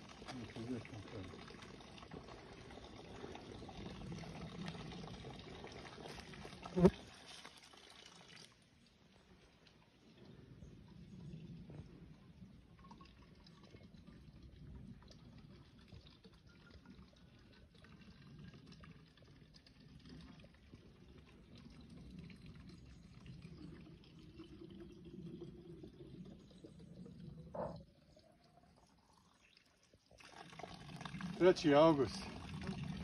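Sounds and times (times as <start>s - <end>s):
spring water running: 0.0s - 10.1s, 30.2s - 33.0s.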